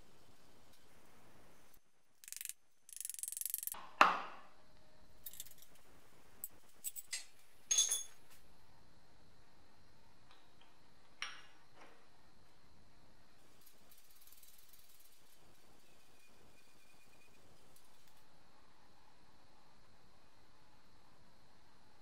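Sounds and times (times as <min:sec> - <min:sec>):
metallic clicks of tools: 0:02.2 - 0:03.8, 0:05.2 - 0:05.8.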